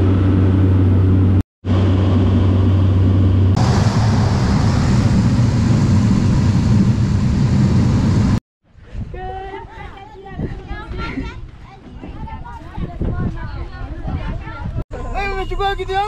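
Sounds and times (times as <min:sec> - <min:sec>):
aircraft cabin drone: 0:00.0 - 0:08.4
plane rumbling on dirt airstrip: 0:00.0 - 0:08.4.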